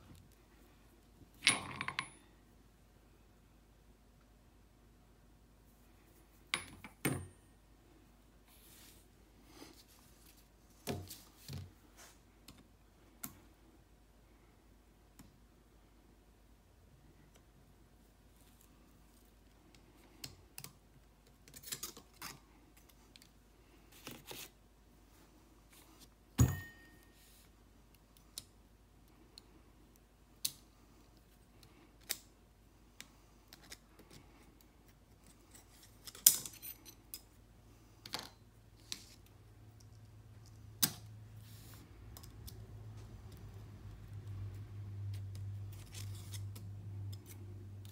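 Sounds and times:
ringing metal clank: 0:26.4 - 0:27.0.

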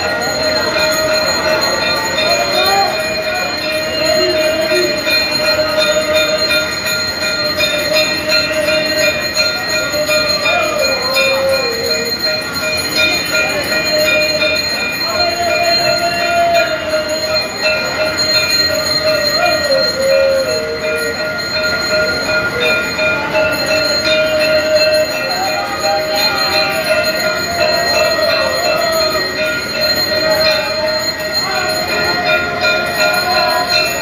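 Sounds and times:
temple bells ringing: 0:00.0 - 0:34.0.

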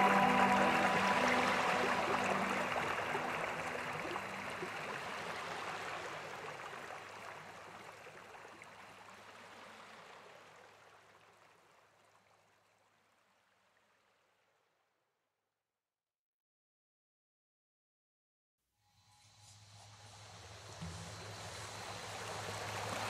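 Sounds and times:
small waves washing onto shore: 0:00.0 - 0:11.7, 0:20.1 - 0:23.0.

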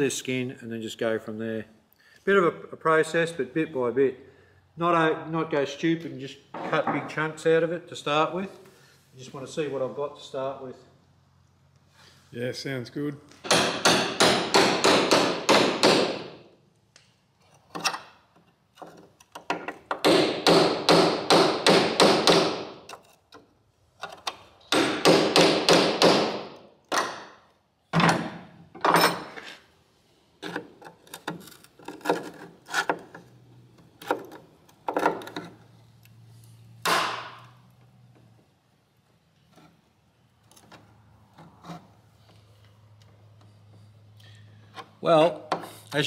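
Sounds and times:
chisel striking metal: 0:13.4 - 0:16.3.

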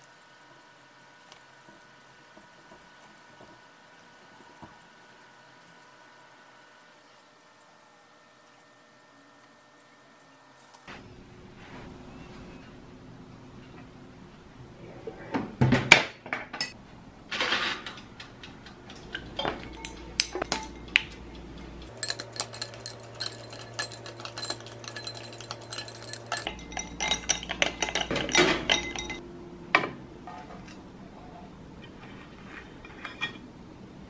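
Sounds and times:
ice clinking in glass: 0:21.9 - 0:29.2.

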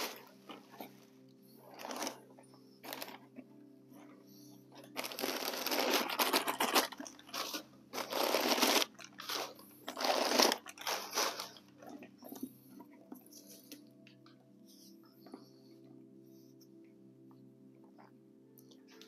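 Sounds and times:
leather bag rustling: 0:04.9 - 0:11.6.

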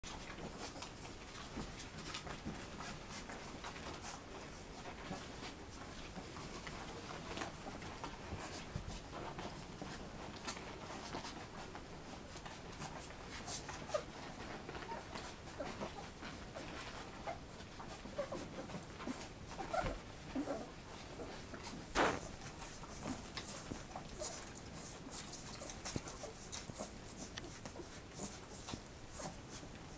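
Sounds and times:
puppies suckling and smacking: 0:00.1 - 0:29.9.

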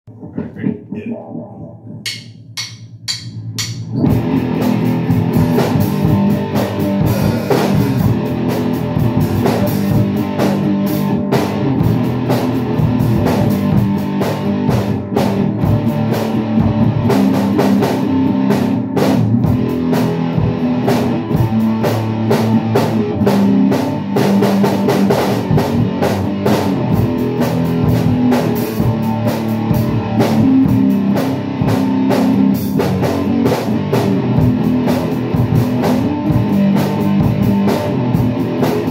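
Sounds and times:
rock band playing: 0:01.8 - 0:38.9
drum hits: 0:01.9 - 0:06.3.

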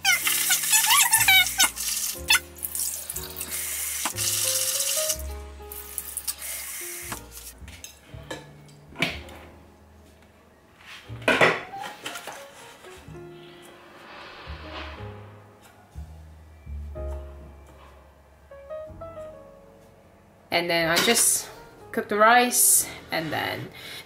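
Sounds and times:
background music: 0:00.0 - 0:24.0
tap water pouring: 0:00.1 - 0:07.3.

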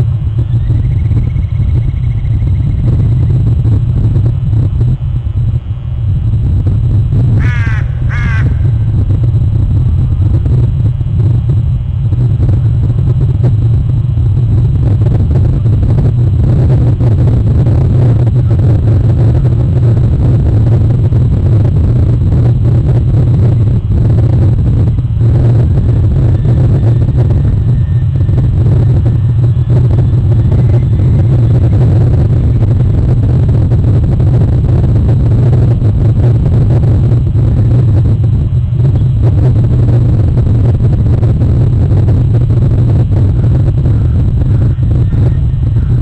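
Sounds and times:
loud low rumble: 0:00.0 - 0:46.0
harsh bird calls: 0:07.4 - 0:08.8.

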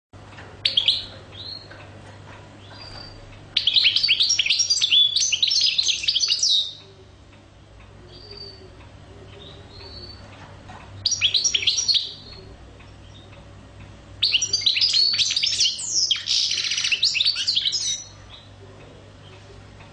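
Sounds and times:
goldfinch twittering: 0:02.6 - 0:06.8, 0:11.0 - 0:12.4, 0:14.2 - 0:18.5.

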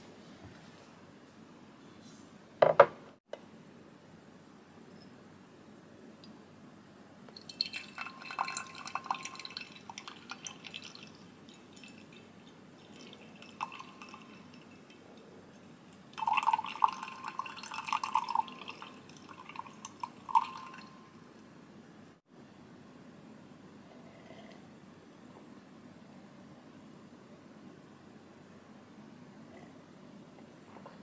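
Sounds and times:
tea trickling into glass mug: 0:07.3 - 0:21.3.

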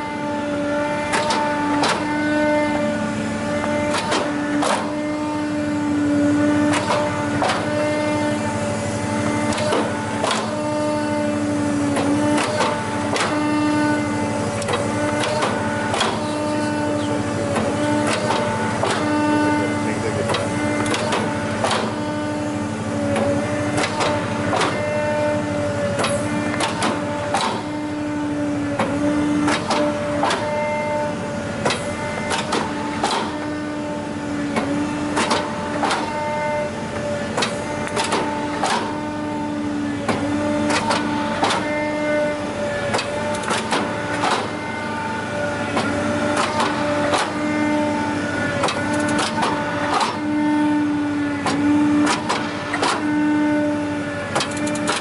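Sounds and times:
hydraulic press humming: 0:00.0 - 0:55.0
machine clicks and knocks: 0:03.9 - 0:04.9, 0:09.5 - 0:10.5, 0:14.6 - 0:16.3, 0:17.5 - 0:19.1, 0:20.3 - 0:22.0, 0:23.2 - 0:24.8, 0:37.4 - 0:38.9, 0:42.9 - 0:44.5, 0:48.6 - 0:50.2, 0:51.5 - 0:53.0, 0:54.4 - 0:55.0.

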